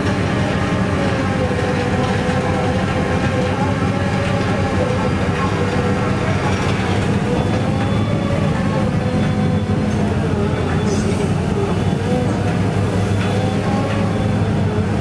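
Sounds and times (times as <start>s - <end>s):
drilling rig engine rumble: 0.0s - 15.0s.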